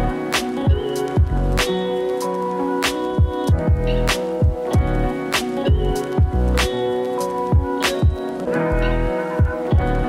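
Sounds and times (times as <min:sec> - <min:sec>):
steady drum beat: 0:00.4 - 0:01.4, 0:02.9 - 0:06.7, 0:07.5 - 0:08.2, 0:09.4 - 0:10.0.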